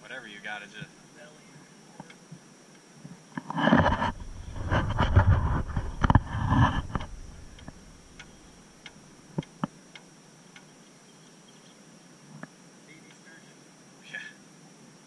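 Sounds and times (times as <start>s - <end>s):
light ticks: 2.0s - 3.4s, 6.8s - 11.0s.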